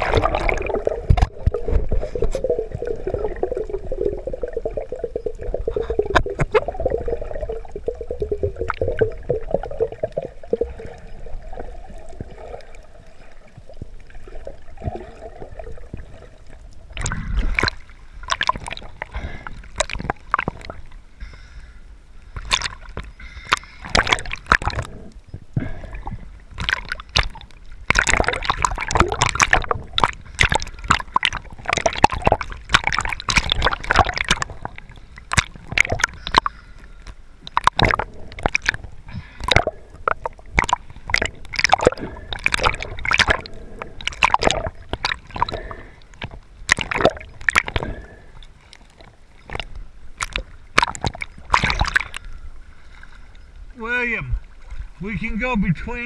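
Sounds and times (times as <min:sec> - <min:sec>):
muffled underwater gurgling: 0:00.0 - 0:17.7, 0:37.5 - 0:48.3
water sloshing and splashing: 0:00.0 - 0:21.1, 0:22.2 - 0:55.1.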